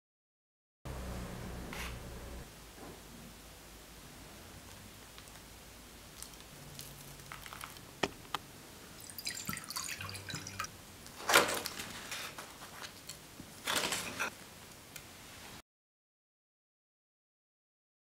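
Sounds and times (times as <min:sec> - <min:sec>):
spoon crunching meringue: 0:05.1 - 0:08.0
sparkling wine fizzing and pouring: 0:08.9 - 0:10.7.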